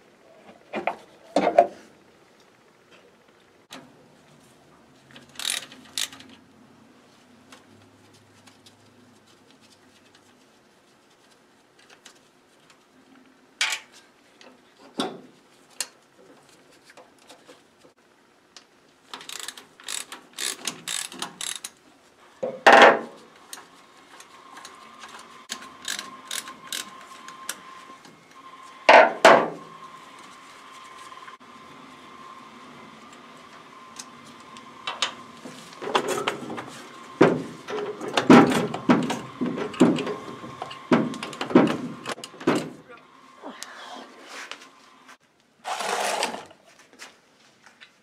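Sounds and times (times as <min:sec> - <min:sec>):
ratchet wrench clicking: 0:05.2 - 0:06.3, 0:19.1 - 0:21.8, 0:25.5 - 0:27.0
metal tools clanking: 0:35.8 - 0:36.7, 0:37.7 - 0:42.8.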